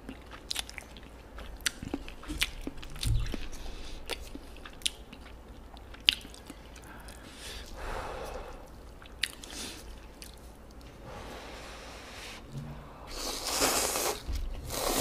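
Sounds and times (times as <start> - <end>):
wet chewing and crunching: 0.0 - 7.8, 8.7 - 11.0
soft low thump: 2.9 - 3.6.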